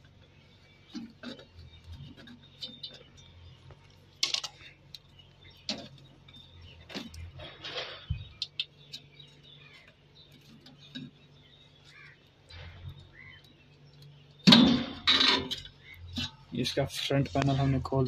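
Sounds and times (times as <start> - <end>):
small metal clicks: 0.8 - 16.5
sheet metal panel clattering: 14.4 - 16.4.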